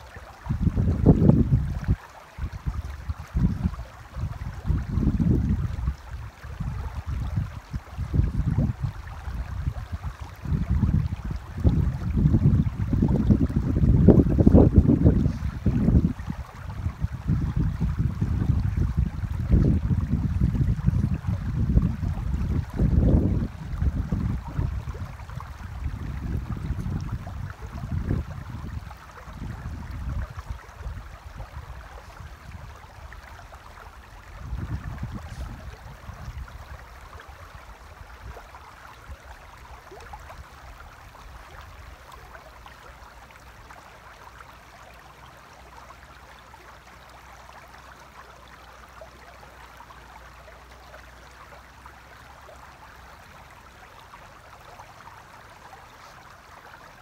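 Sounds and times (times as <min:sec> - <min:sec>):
shallow river over stones: 0:00.0 - 0:57.0
wind gusts on microphone: 0:00.4 - 0:38.4.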